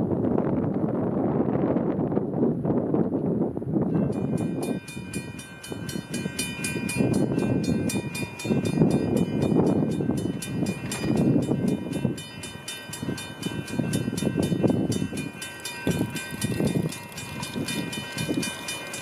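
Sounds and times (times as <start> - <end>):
wind on microphone: 0.0 - 18.7
railroad crossing bell ringing: 3.9 - 19.0.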